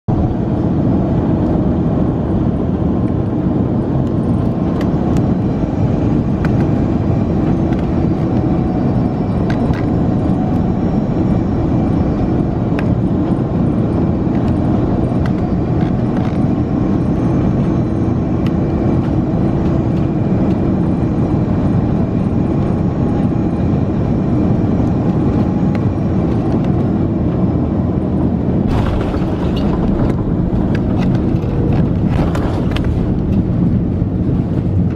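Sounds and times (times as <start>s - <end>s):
aircraft cabin engine noise: 0.0s - 34.9s
airliner touching down: 3.2s - 34.9s.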